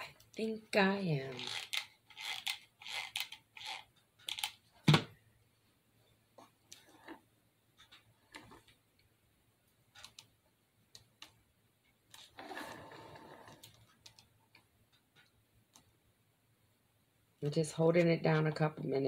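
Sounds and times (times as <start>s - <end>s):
small clicks and taps: 9.8s - 12.3s, 13.6s - 16.0s.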